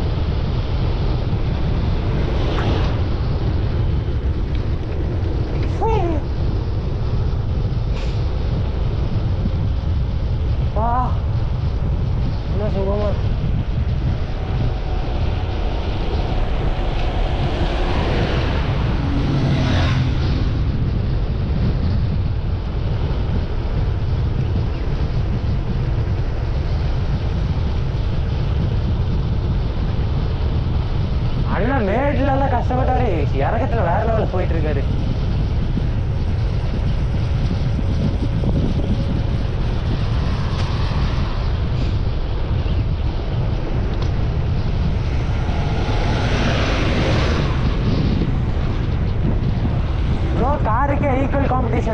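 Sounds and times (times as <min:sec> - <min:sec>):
vehicle engine running: 0:00.0 - 0:31.4
wind rumble on microphone: 0:00.0 - 0:51.9.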